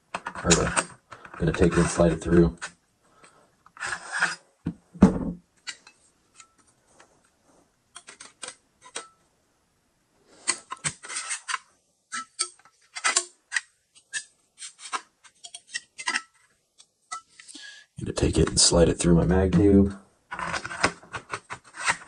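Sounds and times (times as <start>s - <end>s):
gun parts clicking and scraping: 0.1s - 4.4s, 5.6s - 7.1s, 7.9s - 9.2s, 10.4s - 17.5s, 20.3s - 22.0s.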